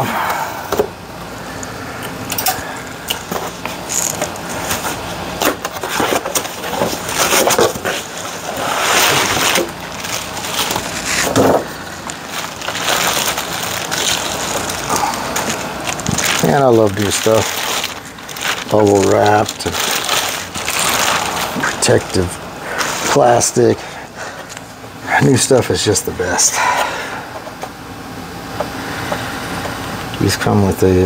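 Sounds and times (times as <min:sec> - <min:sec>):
packaging rustling and crinkling: 0:03.1 - 0:23.6.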